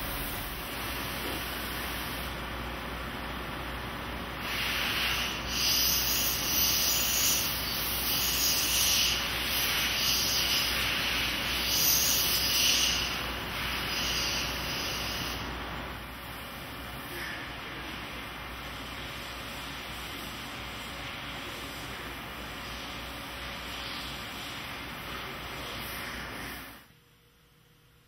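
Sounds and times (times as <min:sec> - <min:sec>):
machine low hum: 0:00.0 - 0:04.5
grinding wheel rasping hiss: 0:04.4 - 0:15.5.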